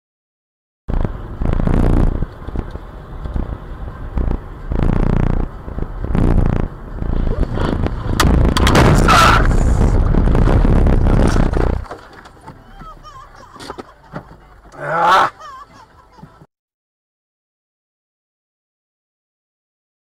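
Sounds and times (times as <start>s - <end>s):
tyre noise on wet road: 0.9s - 16.4s
car crash bangs and scraping: 7.4s - 12.5s.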